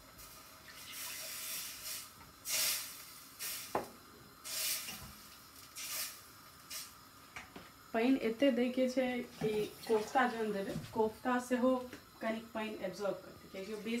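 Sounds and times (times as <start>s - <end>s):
masala sizzling in pan: 0.0s - 8.0s.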